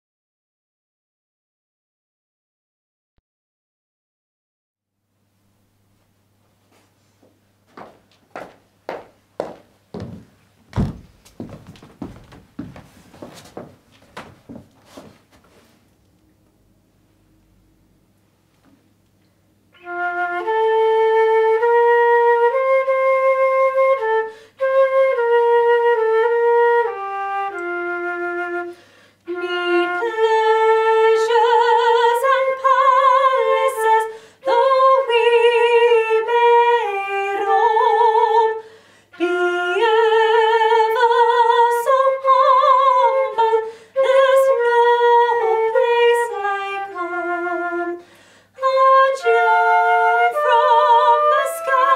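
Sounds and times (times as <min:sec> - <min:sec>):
solo flute melody: 0:19.7 - 0:48.0, 0:48.6 - 0:51.9.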